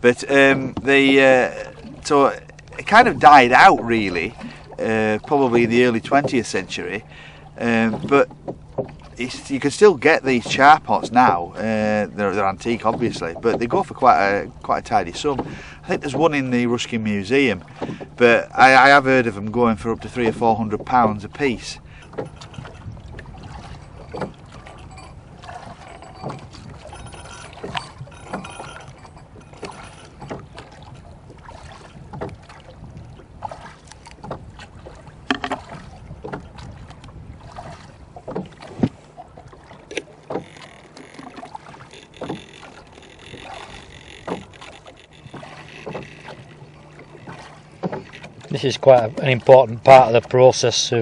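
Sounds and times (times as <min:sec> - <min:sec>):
steady low hum: 0:00.0 - 0:31.5
fishing tackle knocking and clicking: 0:21.8 - 0:30.6, 0:35.3 - 0:35.7, 0:39.9 - 0:48.6.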